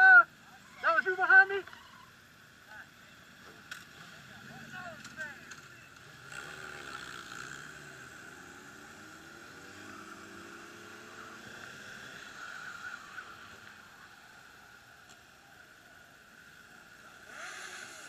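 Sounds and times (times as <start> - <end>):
motorcycle engine accelerating: 5.0 - 14.2.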